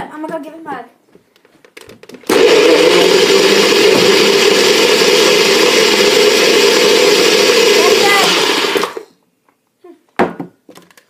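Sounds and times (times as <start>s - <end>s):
blender motor whirring: 2.3s - 9.1s.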